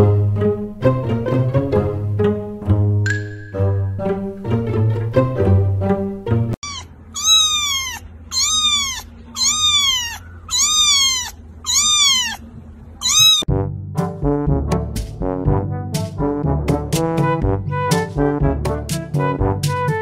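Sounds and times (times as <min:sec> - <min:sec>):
string music track: 0:00.0 - 0:06.6, 0:13.5 - 0:20.0
kitten meowing: 0:06.6 - 0:12.4, 0:13.0 - 0:13.5.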